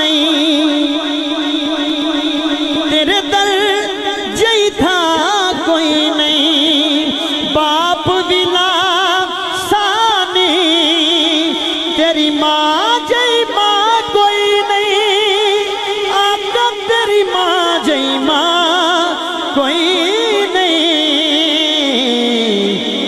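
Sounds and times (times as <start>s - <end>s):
steady held tone: 0.0s - 16.4s
man singing through loudspeakers: 0.0s - 23.0s.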